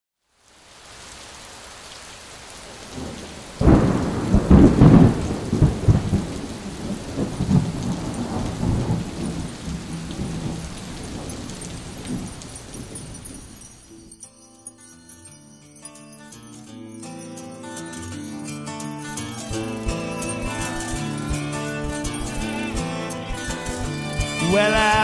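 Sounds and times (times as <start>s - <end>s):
steady rain: 0.2s - 14.2s, 17.0s - 25.0s
rumbling thunderclap: 3.0s - 13.5s.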